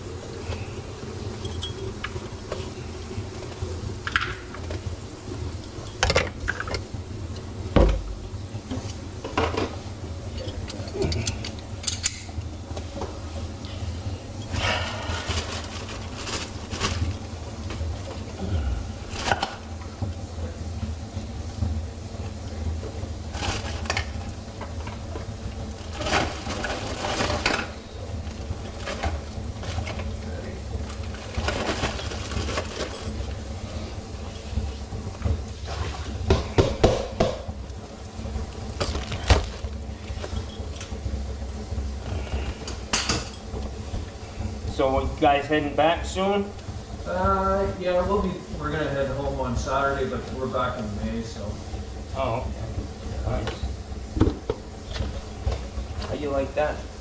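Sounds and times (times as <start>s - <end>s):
steady low hum: 0.0s - 57.0s
tools and parts clinking: 1.4s - 2.1s, 10.3s - 12.3s, 31.5s - 33.3s
plastic packaging rustling: 14.5s - 19.6s, 23.3s - 24.8s, 25.6s - 33.5s, 38.7s - 41.2s.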